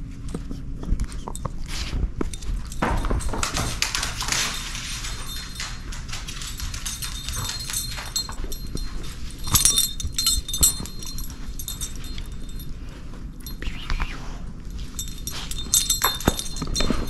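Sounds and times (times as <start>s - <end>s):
dog claws clicking on wooden floor: 0.3s - 12.6s, 14.8s - 17.0s
collar tags jingling: 1.1s - 13.8s, 14.5s - 17.0s.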